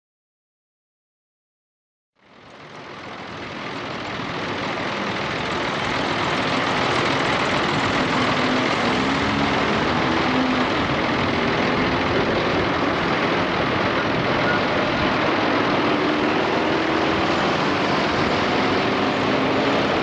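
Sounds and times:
street traffic: 0:02.2 - 0:20.0
tram running on track: 0:02.2 - 0:20.0.

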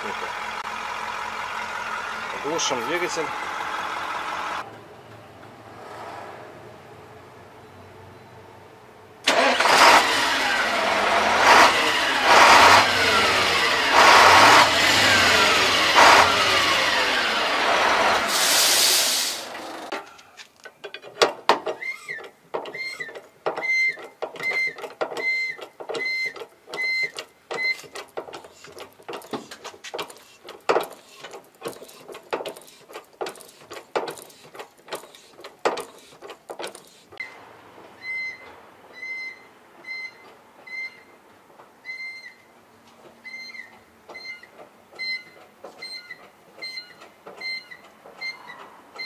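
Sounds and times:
hydraulic hand pump clicking: 0:20.8 - 0:37.2.

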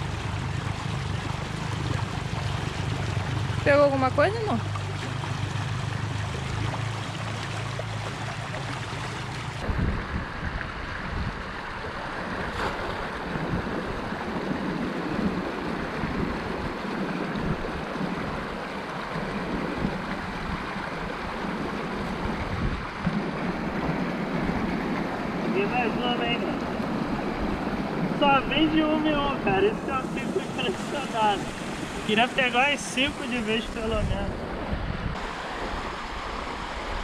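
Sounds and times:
stream running over rocks: 0:00.0 - 0:34.2, 0:35.2 - 0:37.0
wind buffeting microphone: 0:08.0 - 0:37.0.

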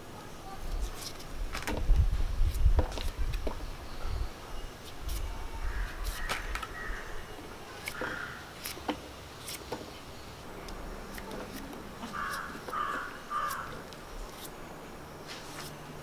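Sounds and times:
knife cutting raw fruit: 0:00.7 - 0:03.7, 0:04.8 - 0:15.8
crow cawing: 0:05.6 - 0:07.2, 0:07.9 - 0:08.5, 0:12.1 - 0:13.8.

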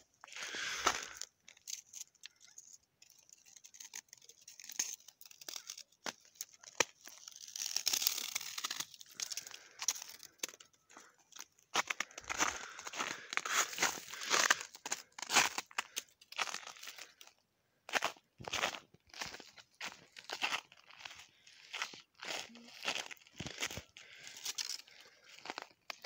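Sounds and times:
footsteps crunching through snow: 0:11.7 - 0:15.7.

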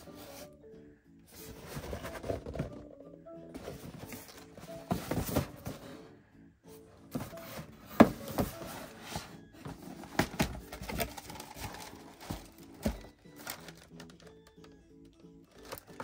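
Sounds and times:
cardboard box knocks and scrapes: 0:01.5 - 0:02.9, 0:03.6 - 0:05.9, 0:07.1 - 0:11.1.

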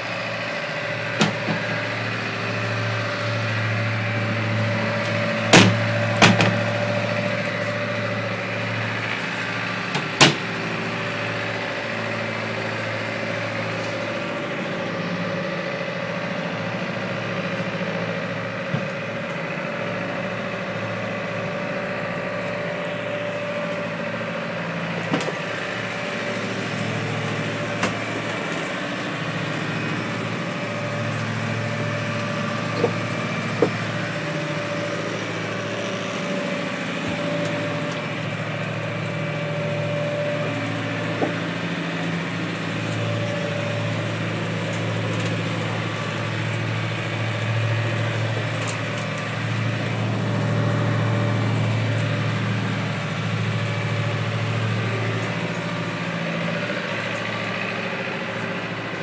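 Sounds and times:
boat engine humming: 0:00.0 - 0:59.0
sharp knocks: 0:05.5 - 0:06.6.

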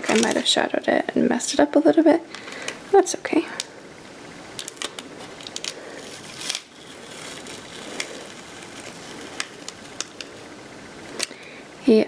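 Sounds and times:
paper and tape crinkling: 0:00.0 - 0:00.6, 0:04.6 - 0:10.4.

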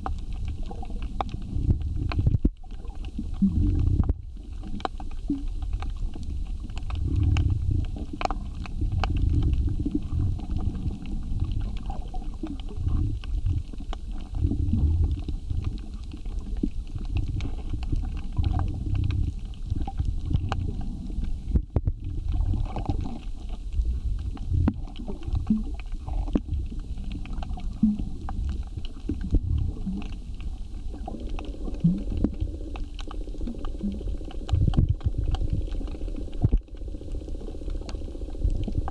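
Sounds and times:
faint steady hum: 0:00.0 - 0:38.9
low rumble of moving water: 0:00.0 - 0:38.9
underwater clicks and crackles: 0:00.0 - 0:38.9.

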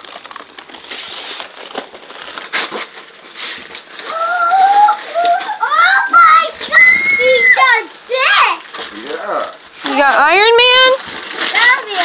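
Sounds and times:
wrapping paper crinkling and tearing: 0:00.0 - 0:12.0
young child's voice: 0:04.0 - 0:08.8, 0:11.5 - 0:12.0.

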